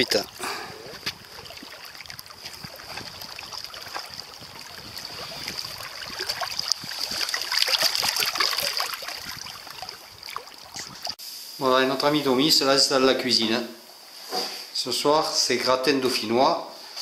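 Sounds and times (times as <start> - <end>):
water splashing around rocks: 0.0 - 11.2.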